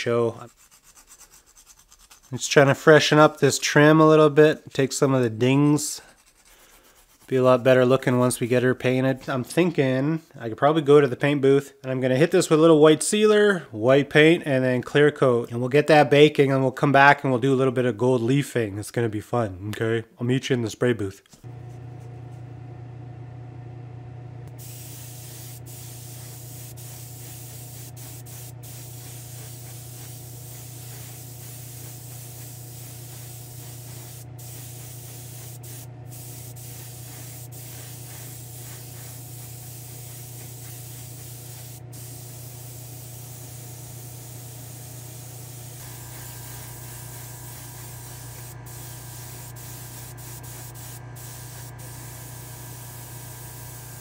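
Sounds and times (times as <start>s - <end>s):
constant low hum: 21.5s - 54.0s
airbrush spraying hiss: 24.5s - 54.0s.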